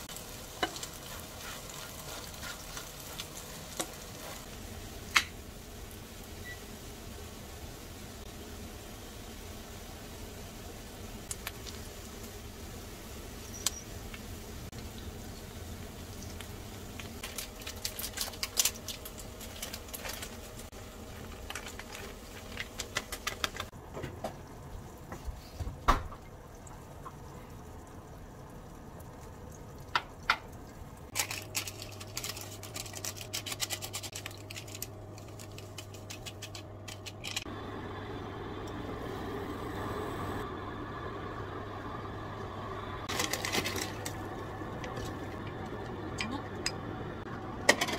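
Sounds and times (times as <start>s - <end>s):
low background hum: 0.0s - 47.9s
utensils tapping a frying pan: 0.5s - 4.0s.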